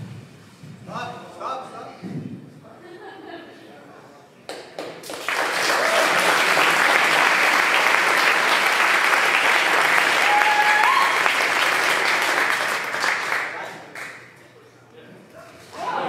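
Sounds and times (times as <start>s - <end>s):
audience applauding and cheering: 4.8s - 14.2s.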